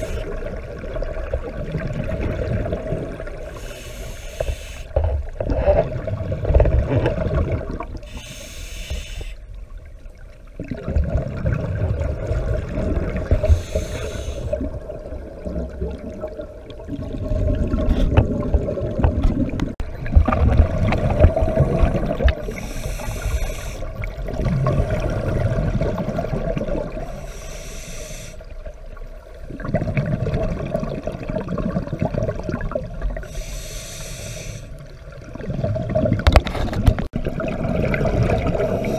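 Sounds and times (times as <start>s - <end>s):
gurgling exhaled bubbles: 0.0s - 3.6s, 5.0s - 8.1s, 10.6s - 27.2s, 29.3s - 33.4s, 34.8s - 38.9s
regulator hissing inhalation: 3.6s - 4.9s, 8.1s - 9.4s, 13.4s - 14.6s, 22.5s - 23.9s, 27.1s - 28.5s, 33.2s - 34.8s.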